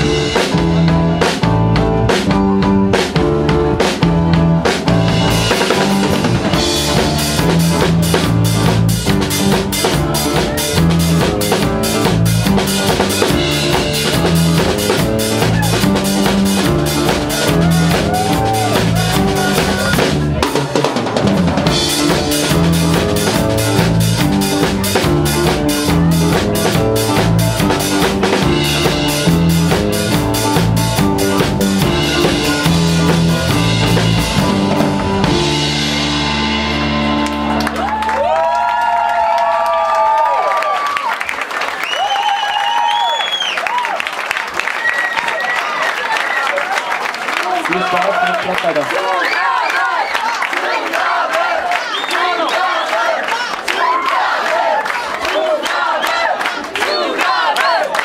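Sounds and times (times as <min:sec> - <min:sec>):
drum kit beat: 0:00.0 - 0:38.6
electric bass guitar: 0:00.0 - 0:38.6.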